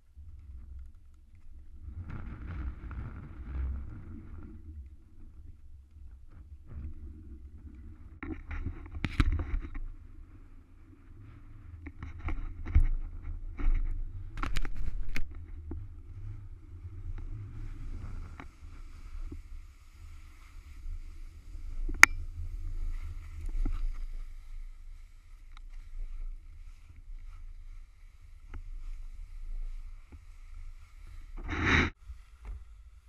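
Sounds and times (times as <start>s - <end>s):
wind on microphone: 1.6s - 32.7s
skis scraping over snow: 12.5s - 33.0s.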